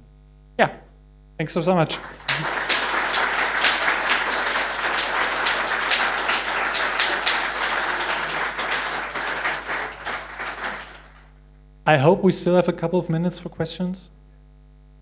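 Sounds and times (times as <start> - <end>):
audience applauding: 1.9 - 11.3.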